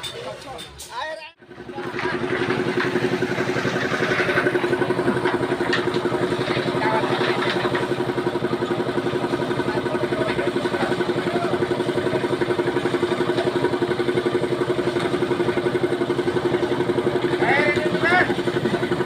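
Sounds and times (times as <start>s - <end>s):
concrete mixer engine chugging: 1.4s - 19.0s.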